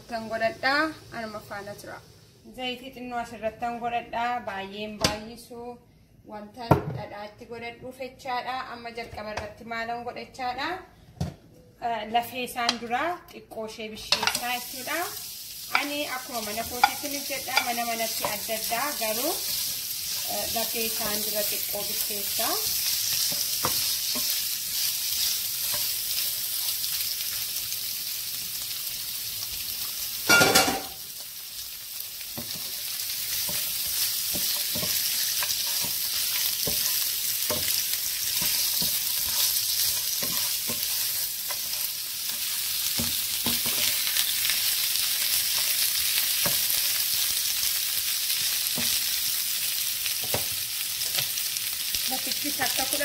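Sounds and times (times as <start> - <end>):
meat sizzling in a frying pan: 0.0 - 2.5, 14.0 - 53.0.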